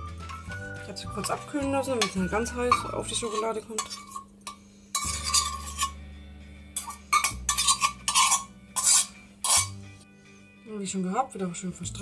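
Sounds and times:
metal spoon scraping steel bowl: 0:00.2 - 0:06.0, 0:06.8 - 0:09.8.

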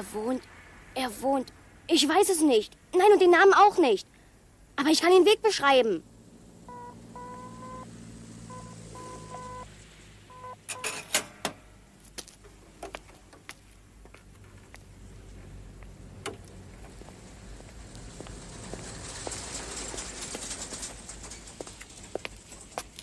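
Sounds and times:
telephone line tone beeping: 0:06.7 - 0:07.9, 0:08.5 - 0:09.7, 0:10.3 - 0:11.0
footsteps: 0:12.0 - 0:23.0.

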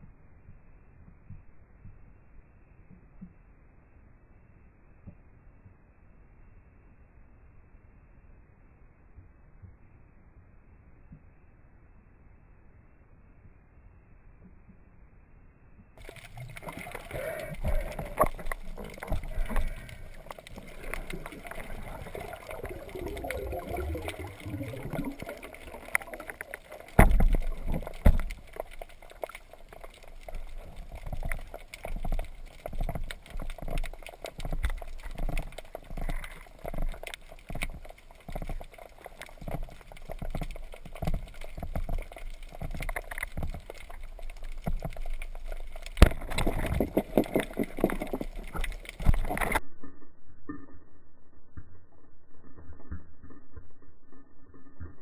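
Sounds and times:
water swishing underwater: 0:16.0 - 0:49.9.

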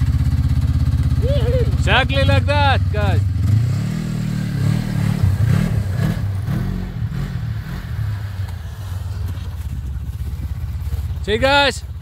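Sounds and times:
snowmobile engine revving: 0:00.0 - 0:11.9
snowmobile idling drone: 0:00.0 - 0:12.0.

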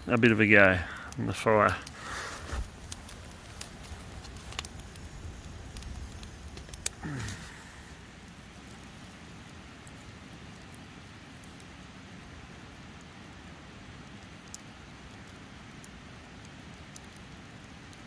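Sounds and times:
campfire crackling and popping: 0:00.0 - 0:18.0
faint fire hiss: 0:00.0 - 0:18.0.

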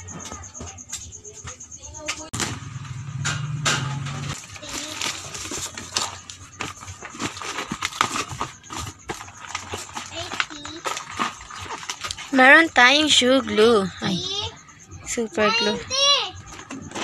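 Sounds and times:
plastic packaging crackling: 0:04.4 - 0:12.4.

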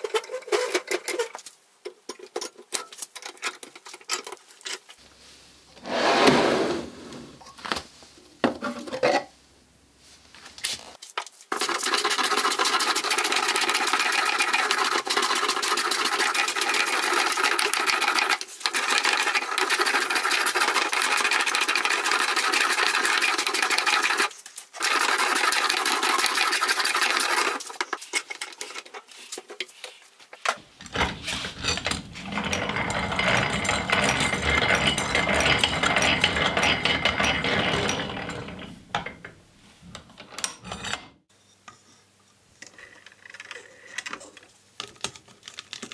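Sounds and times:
hand-cranked drill gears clicking: 0:11.6 - 0:27.8, 0:30.8 - 0:39.3.

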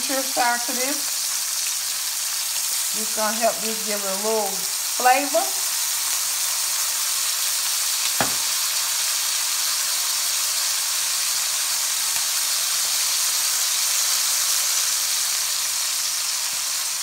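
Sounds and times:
meat sizzling in hot oil: 0:00.0 - 0:17.0
light knock: 0:08.2 - 0:08.5.

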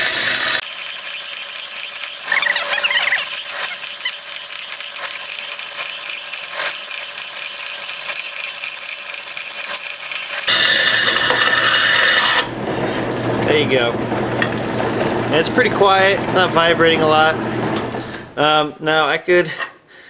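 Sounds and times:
bandsaw cutting steel plate: 0:00.0 - 0:13.6.

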